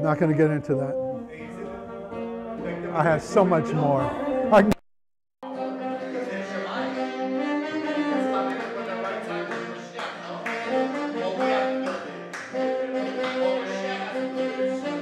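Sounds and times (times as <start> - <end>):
brass horns melody: 5.4 - 15.0.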